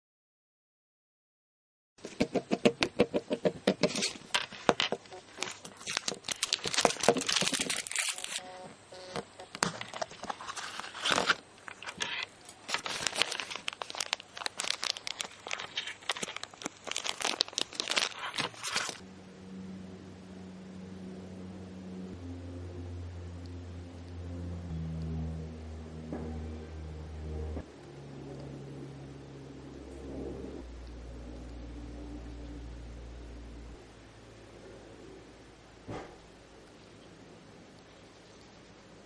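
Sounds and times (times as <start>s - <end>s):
faint steady hum: 2.5s - 39.0s
plastic bag crinkling: 3.9s - 8.4s, 9.6s - 19.0s.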